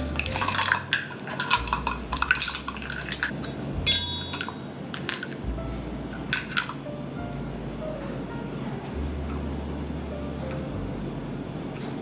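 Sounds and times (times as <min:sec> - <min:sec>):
metal measuring spoons clinking: 0:00.0 - 0:05.3.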